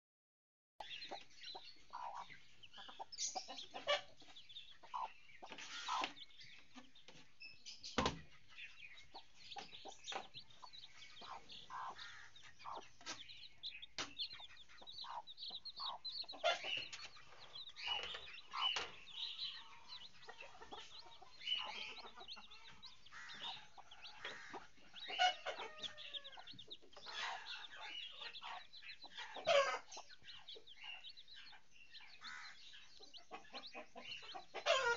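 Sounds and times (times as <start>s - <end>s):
hen clucking: 0.8s - 7.2s, 8.3s - 34.9s
chicks peeping: 0.8s - 34.9s.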